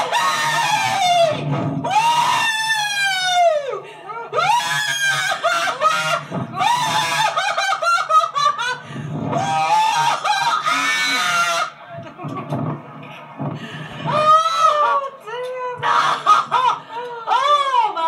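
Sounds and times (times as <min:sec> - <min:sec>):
woman screaming: 0:00.0 - 0:06.0, 0:09.4 - 0:11.7, 0:17.3 - 0:18.0.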